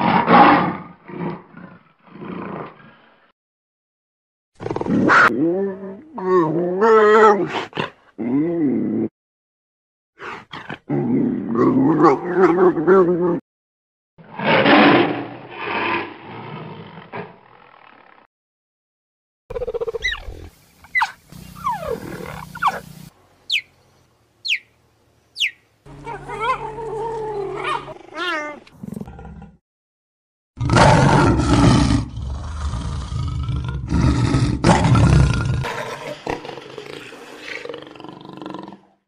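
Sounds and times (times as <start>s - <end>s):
tiger growling: 19.5s - 23.1s, 25.9s - 29.6s, 30.6s - 39.0s
lions roaring: 21.3s - 22.9s, 25.9s - 29.6s, 30.6s - 38.9s
leopard growling: 21.3s - 23.1s, 25.9s - 29.6s, 30.6s - 39.0s.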